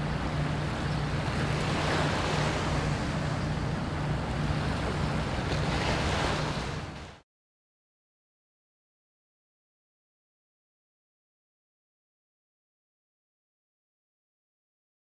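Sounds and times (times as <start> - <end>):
river water: 0.0 - 7.2
ship diesel engine drone: 0.0 - 7.2.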